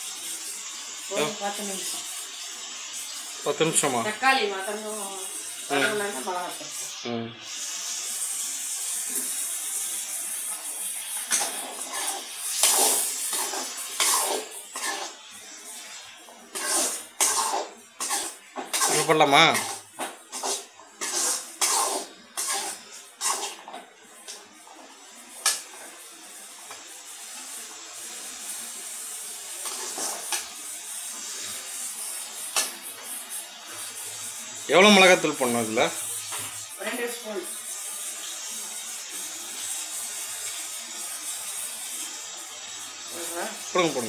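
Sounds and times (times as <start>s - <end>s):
prawns and tomatoes sizzling in oil: 0.0s - 44.0s
swishing stirring strokes: 7.5s - 44.0s
metal spatula scraping pan: 10.6s - 15.2s, 15.9s - 23.9s, 29.6s - 30.5s.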